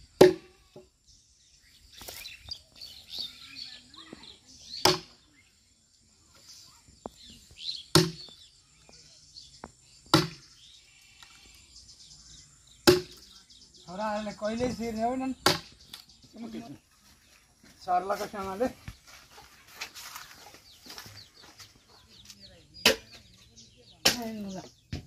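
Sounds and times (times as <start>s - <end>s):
axe chopping log: 0.2s - 0.5s, 4.8s - 5.2s, 7.9s - 8.3s, 10.1s - 10.4s, 12.8s - 13.2s, 15.4s - 15.8s, 22.8s - 23.2s, 24.0s - 25.0s.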